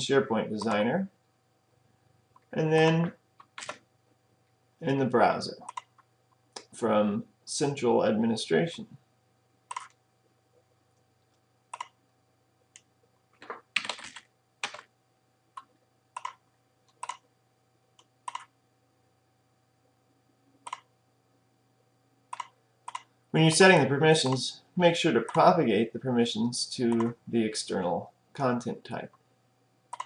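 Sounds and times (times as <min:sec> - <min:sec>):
keyboard and mouse clicks: 0:03.4 - 0:03.8, 0:05.6 - 0:06.8, 0:09.7 - 0:10.0, 0:11.7 - 0:12.0, 0:15.6 - 0:17.3, 0:18.0 - 0:18.5, 0:20.6 - 0:20.9, 0:22.3 - 0:23.1, 0:24.2 - 0:24.4
keystrokes: 0:03.4 - 0:03.8, 0:05.6 - 0:06.0, 0:09.7 - 0:10.0, 0:11.7 - 0:12.0, 0:12.8 - 0:14.9, 0:15.6 - 0:17.2, 0:18.3 - 0:18.5, 0:20.7 - 0:20.9, 0:22.3 - 0:23.1, 0:24.2 - 0:24.4.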